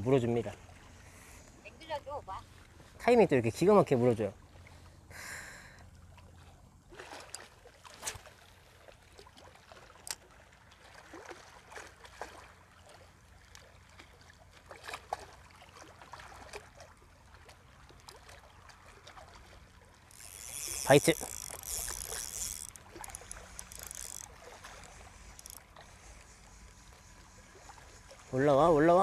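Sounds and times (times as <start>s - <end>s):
water lapping against rocks: 6.0s - 29.0s.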